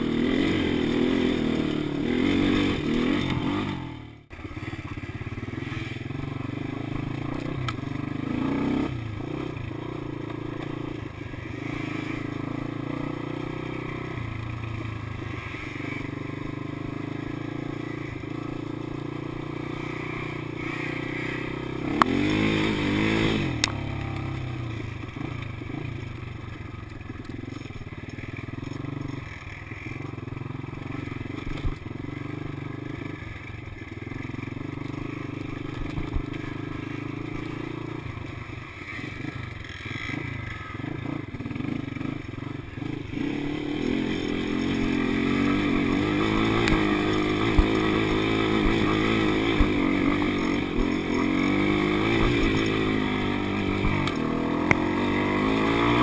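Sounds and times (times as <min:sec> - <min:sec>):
atv engine revving: 0:00.0 - 0:56.0.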